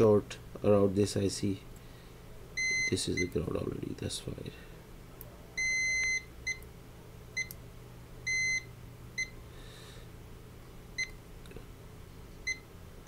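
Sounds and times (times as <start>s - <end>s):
multimeter beeping: 2.6s - 3.3s, 5.6s - 6.6s, 8.3s - 9.3s.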